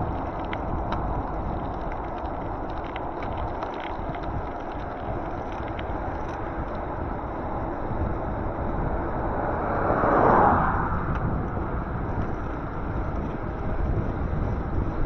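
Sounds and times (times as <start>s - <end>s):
wind and road noise: 0.0s - 15.0s
vehicle passing: 7.0s - 13.6s.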